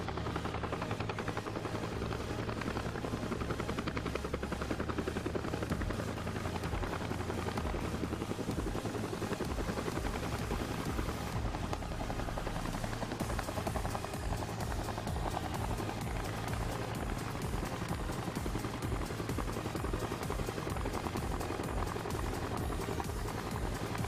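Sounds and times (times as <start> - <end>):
helicopter rotor chop: 0.0 - 24.0.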